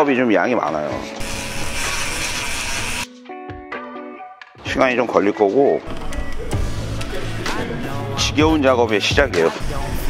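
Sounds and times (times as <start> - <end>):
compressed air hissing: 1.2 - 3.1.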